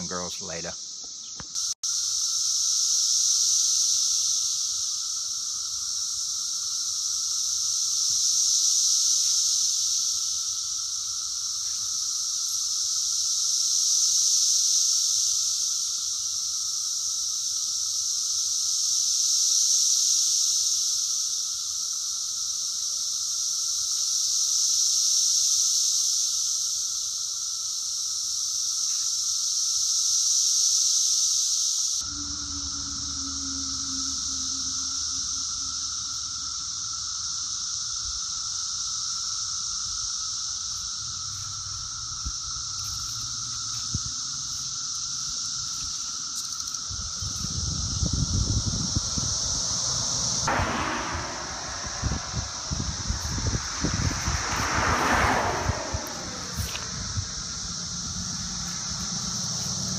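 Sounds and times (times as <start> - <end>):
cicadas shrill drone: 0.0 - 59.9
low steady drone: 32.0 - 37.2, 47.3 - 59.9.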